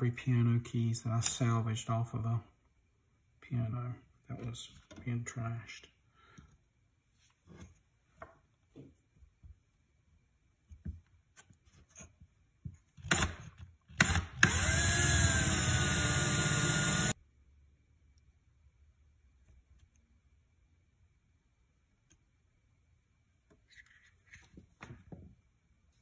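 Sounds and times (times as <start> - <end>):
cordless drill boring wood: 13.1 - 13.4, 14.0 - 17.2.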